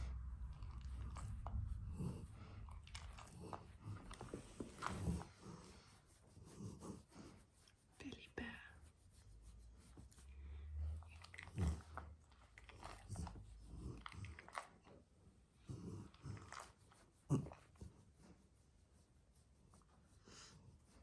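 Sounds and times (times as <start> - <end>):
hand scratching dog fur: 1.2 - 10.4.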